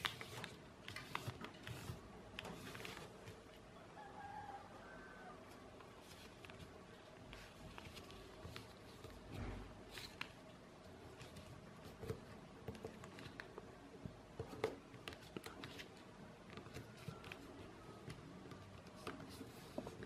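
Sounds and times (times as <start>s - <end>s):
paper rustling and crinkling: 0.0s - 3.5s, 5.8s - 10.4s.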